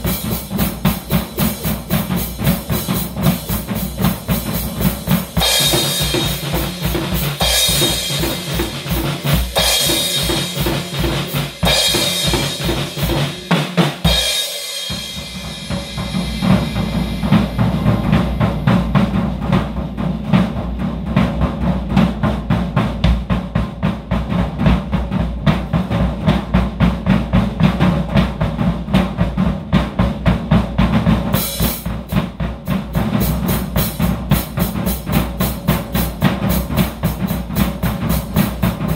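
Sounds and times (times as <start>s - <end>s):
cymbal crashes: 0.0s - 20.7s
bass drum: 0.0s - 38.9s
fast run of drum strokes: 0.0s - 38.9s.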